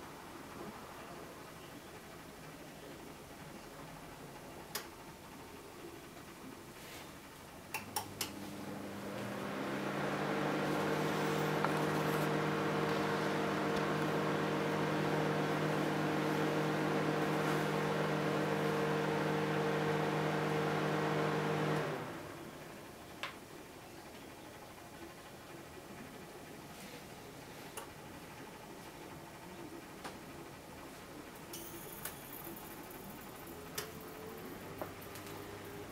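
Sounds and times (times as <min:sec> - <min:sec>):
microwave humming with fan: 0:07.5 - 0:23.1.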